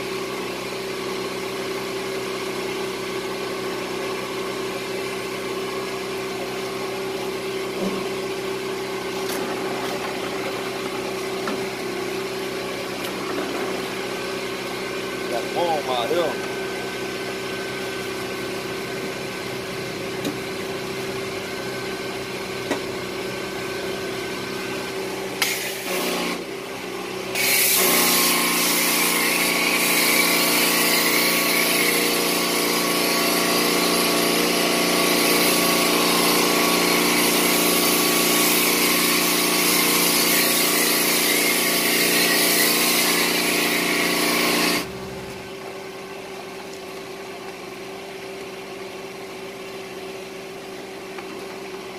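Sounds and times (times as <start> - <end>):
pressure washer spraying water: 24.6 - 26.4, 27.3 - 45.0.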